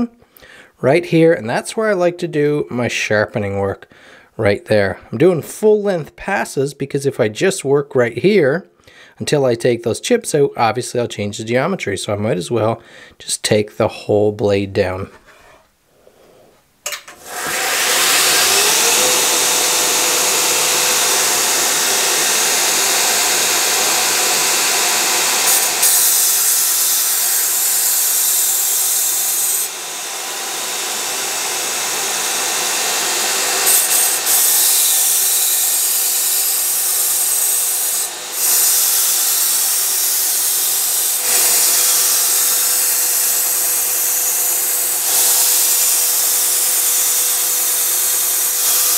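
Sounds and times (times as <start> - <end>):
belt grinder grinding steel: 16.9 - 48.9.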